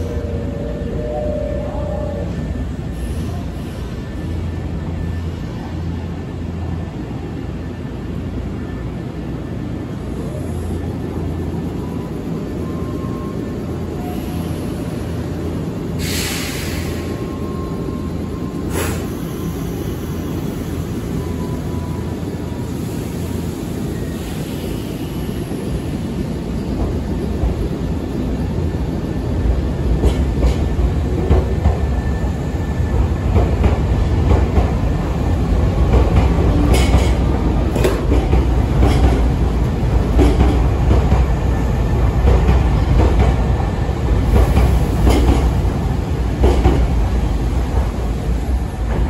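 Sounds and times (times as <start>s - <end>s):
train running rumble: 0.0s - 49.0s
train wheel clacks: 30.0s - 31.8s, 35.8s - 41.3s, 44.3s - 45.6s, 46.4s - 46.9s.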